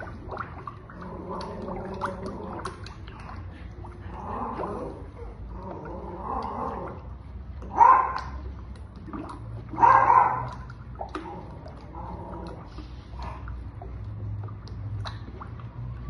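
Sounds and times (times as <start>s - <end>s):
thick mixture being stirred: 0.0s - 16.0s
dog barking: 7.7s - 8.4s, 9.8s - 10.6s.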